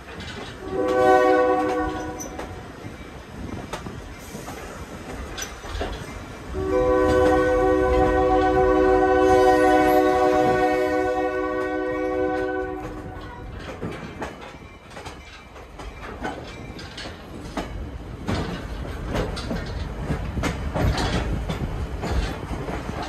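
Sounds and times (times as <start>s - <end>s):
train car rumbling on track: 0.0s - 23.0s
wheels clacking over rail joints: 0.0s - 23.0s
train horn chord: 0.6s - 2.5s, 6.5s - 13.3s.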